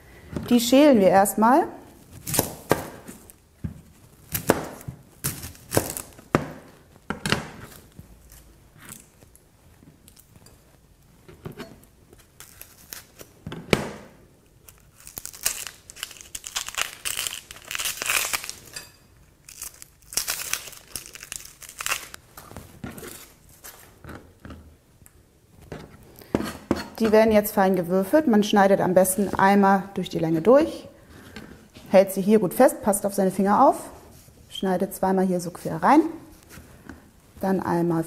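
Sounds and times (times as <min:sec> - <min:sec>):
onion skins crackling and tearing: 0:02.0 - 0:03.4, 0:04.0 - 0:06.8, 0:12.1 - 0:13.4, 0:14.5 - 0:24.0.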